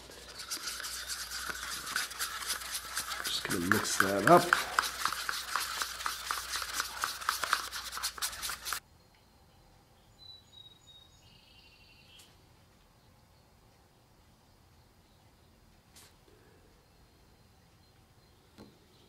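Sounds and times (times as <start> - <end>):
stirrer scraping plastic cup: 0.0 - 8.8.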